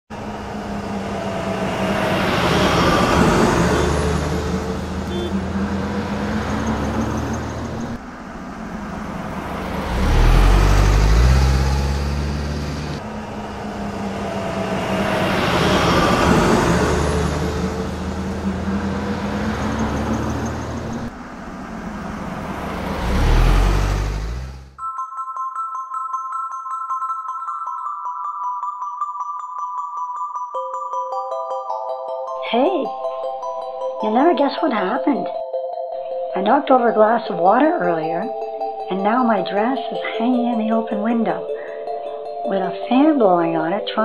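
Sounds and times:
cars passing: 0:00.1 - 0:24.8
deep vehicle rumble: 0:00.1 - 0:24.8.

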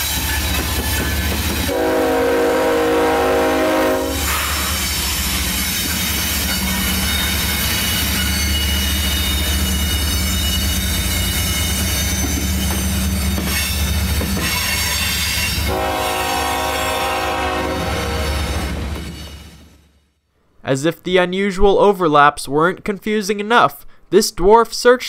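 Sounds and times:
freight train rumble: 0:00.0 - 0:19.8
train horn chord: 0:01.7 - 0:04.7, 0:15.6 - 0:18.6
wheel squeal: 0:04.2 - 0:15.6.

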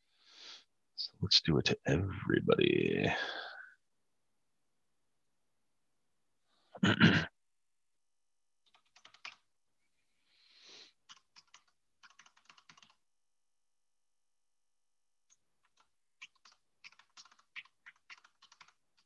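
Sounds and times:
typing on computer keyboard: 0:08.6 - 0:09.5, 0:11.0 - 0:13.0, 0:15.3 - 0:19.0.

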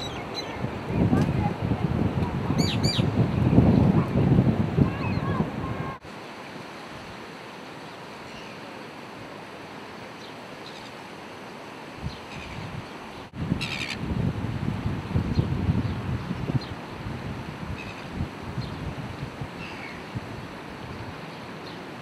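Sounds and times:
wind buffeting microphone: 0:00.0 - 0:06.0, 0:12.0 - 0:22.0
outdoor ambience hiss: 0:00.0 - 0:22.0
small birds chirping: 0:02.6 - 0:04.0.

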